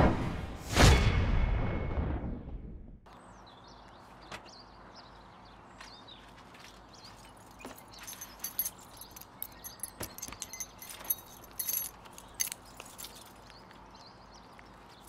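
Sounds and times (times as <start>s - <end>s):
keys jangling: 7.2s - 13.7s.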